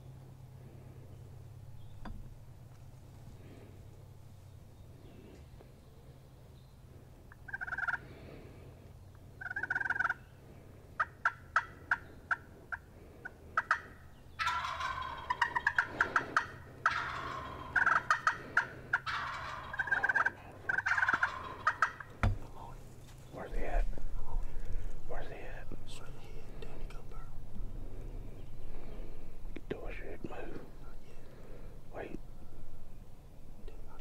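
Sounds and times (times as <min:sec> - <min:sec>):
turkey gobbling: 0:07.3 - 0:08.0, 0:09.4 - 0:10.2, 0:11.0 - 0:22.4.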